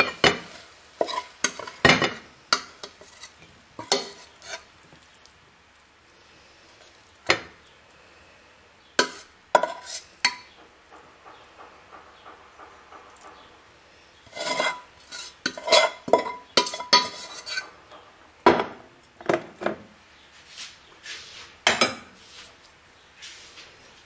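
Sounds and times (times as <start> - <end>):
metal spoon scraping a pot: 0.0 - 4.7, 9.0 - 10.6, 14.2 - 17.8.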